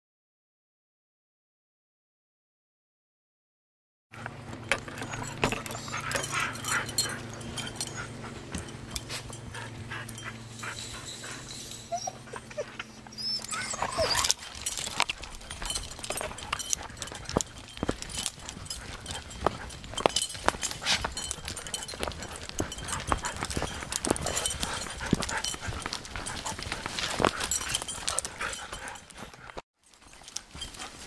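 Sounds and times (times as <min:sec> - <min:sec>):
steady low hum: 0:04.2 - 0:29.6
clicks and rustles: 0:04.2 - 0:31.0
dogs whining: 0:04.2 - 0:31.0.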